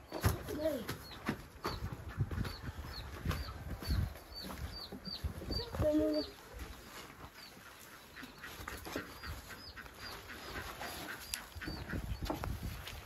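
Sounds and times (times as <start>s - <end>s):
small bird chirping: 0.0s - 12.4s
rustling: 5.8s - 13.0s.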